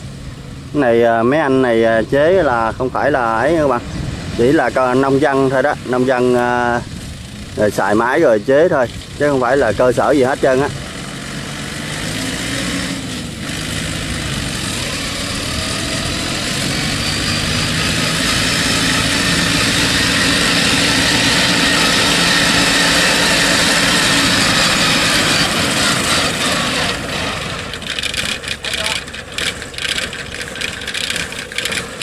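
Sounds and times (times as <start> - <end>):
machine engine running: 0.0 - 32.0.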